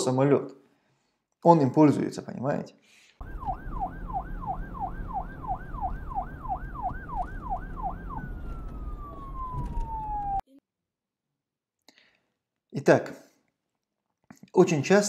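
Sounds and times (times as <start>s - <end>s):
siren yelping: 3.2s - 10.4s.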